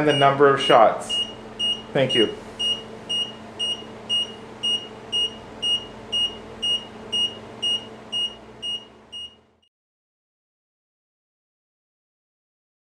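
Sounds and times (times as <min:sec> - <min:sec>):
faint steady hum: 0:00.0 - 0:09.7
electronic beeper short high beeps: 0:00.1 - 0:00.4, 0:01.1 - 0:09.4.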